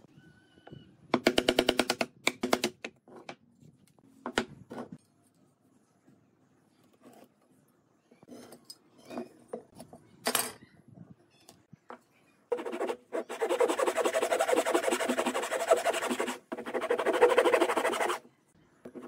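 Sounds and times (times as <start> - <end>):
handsaw cutting wood: 12.6 - 18.2.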